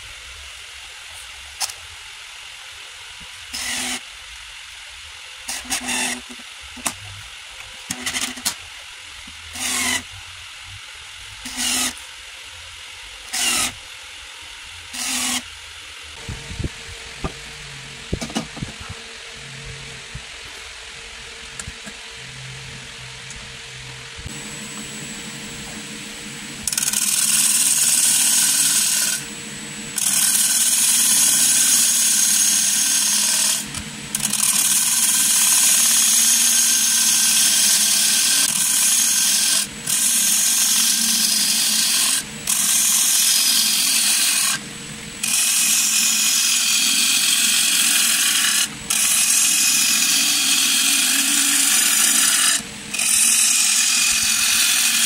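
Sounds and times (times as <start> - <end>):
lathe motor hum: 16.2 - 55.0
gouge cutting wood on lathe: 26.6 - 29.3, 30.0 - 44.6, 45.2 - 55.0.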